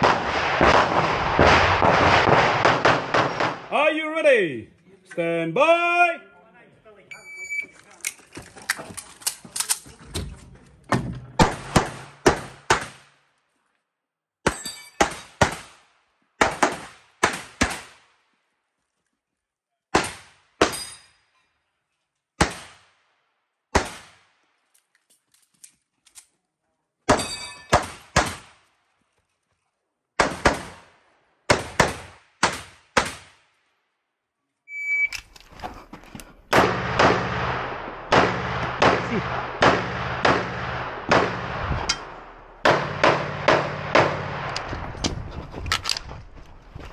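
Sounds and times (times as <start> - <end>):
pistol shots: 0.0 - 3.7, 11.4 - 13.1, 23.7 - 24.2, 27.1 - 28.6, 30.2 - 30.9, 31.5 - 33.4, 36.5 - 44.7
shot timer beep: 34.7 - 35.2.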